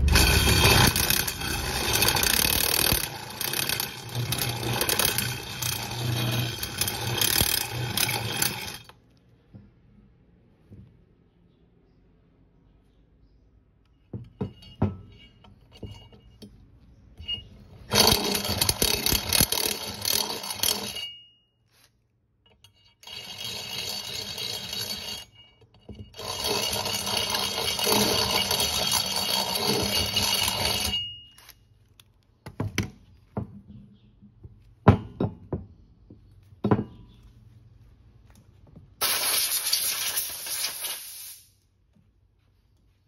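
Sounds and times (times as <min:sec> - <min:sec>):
drill bit scraping metal: 0:00.0 - 0:08.9, 0:17.2 - 0:21.2, 0:22.7 - 0:31.1.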